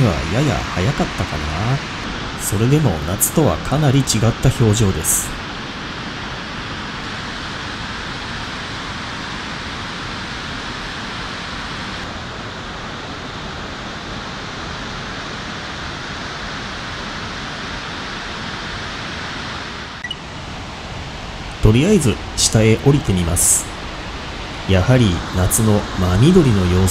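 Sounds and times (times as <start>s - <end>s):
waterfall rushing: 0.0s - 8.0s, 18.0s - 26.9s.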